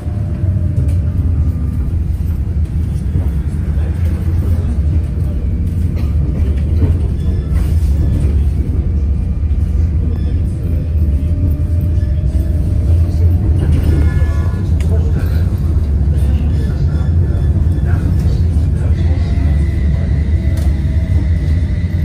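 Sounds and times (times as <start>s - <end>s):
tram wheels rumbling on rails: 0.0s - 22.0s.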